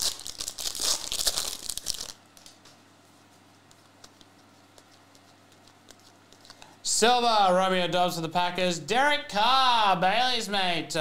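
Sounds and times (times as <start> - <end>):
foil wrapper tearing and crinkling: 0.0 - 2.2.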